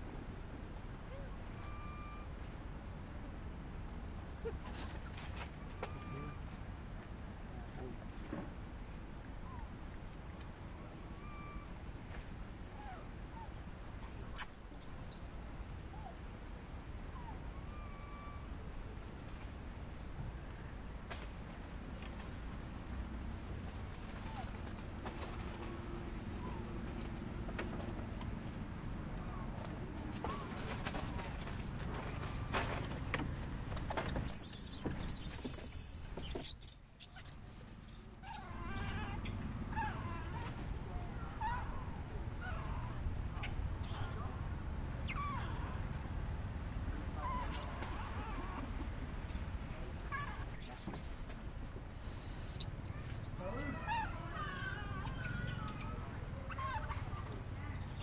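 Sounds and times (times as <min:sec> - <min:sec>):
low background hum: 0:00.0 - 0:58.0
low rumble of wind: 0:00.0 - 0:58.0
monkey wavering call: 0:01.1 - 0:02.3, 0:17.2 - 0:18.6
faint whistled animal calls: 0:01.1 - 0:02.4, 0:05.6 - 0:06.5, 0:11.1 - 0:11.8, 0:17.1 - 0:18.7, 0:34.2 - 0:39.1, 0:50.1 - 0:52.6
monkeys squeaking: 0:34.2 - 0:40.5, 0:42.4 - 0:44.4, 0:45.1 - 0:45.9, 0:47.2 - 0:48.6, 0:50.1 - 0:57.6.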